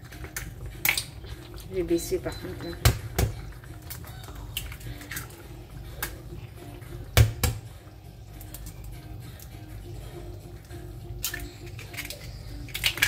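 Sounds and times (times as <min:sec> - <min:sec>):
egg tapping on metal pan: 0:02.6 - 0:03.4, 0:07.1 - 0:07.7.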